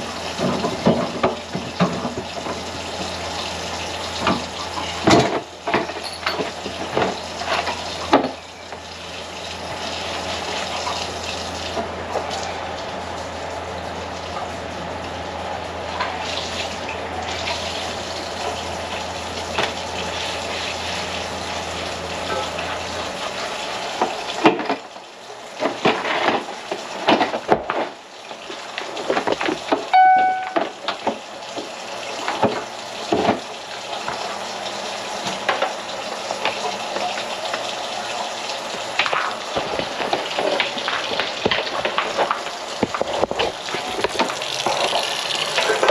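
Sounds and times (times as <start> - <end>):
short high tone: 29.9 - 30.8.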